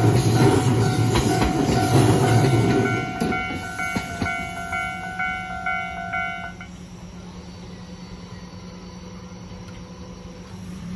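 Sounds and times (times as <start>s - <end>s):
level crossing bell clanging: 0.4s - 6.7s.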